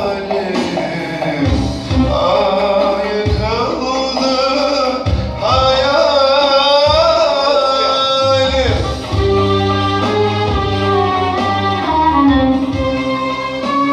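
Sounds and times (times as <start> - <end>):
electronic keyboard: 0.0 - 13.9
violin: 0.0 - 13.9.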